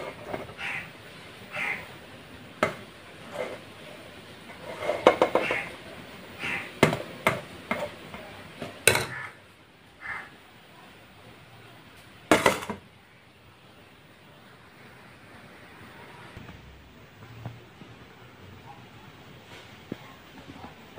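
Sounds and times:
soft scraping of rice: 3.2s - 5.6s.

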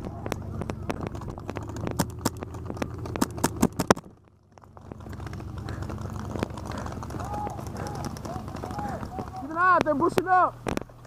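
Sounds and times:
paintball markers firing: 0.0s - 4.2s.

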